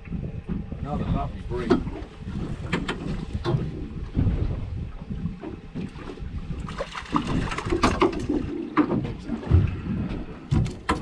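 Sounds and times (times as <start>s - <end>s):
water lapping against boat hull: 0.0s - 11.0s
wind on microphone: 0.0s - 11.0s.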